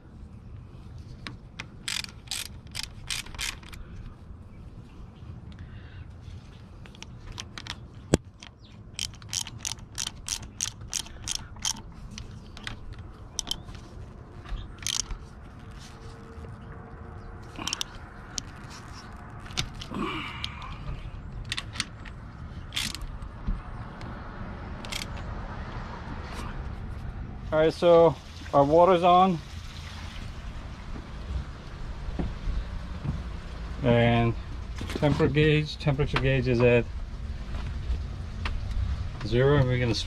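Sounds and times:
ratchet wrench clicking: 0:01.8 - 0:03.8, 0:08.4 - 0:12.7, 0:13.4 - 0:13.6, 0:14.8 - 0:15.2, 0:17.6 - 0:18.5, 0:22.7 - 0:23.1, 0:24.8 - 0:25.2.

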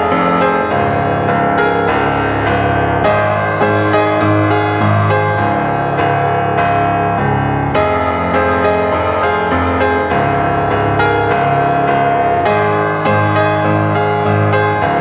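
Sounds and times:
piano background music: 0:00.0 - 0:15.0.

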